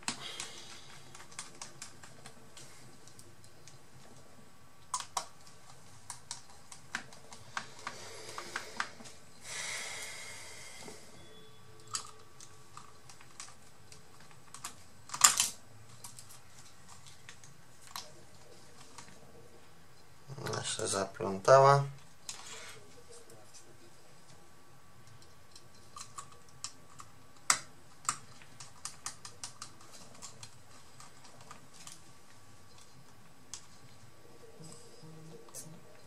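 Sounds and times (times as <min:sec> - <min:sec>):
small parts clicking and tapping: 0:11.8 - 0:19.2.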